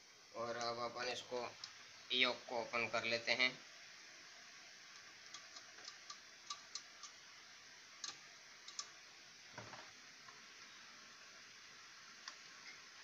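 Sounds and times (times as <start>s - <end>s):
faint metal and plastic clicks: 8.0s - 9.0s.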